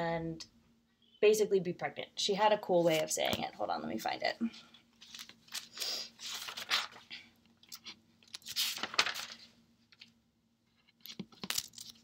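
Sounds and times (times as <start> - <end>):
book pages rustling: 4.9 - 10.1, 10.8 - 12.0.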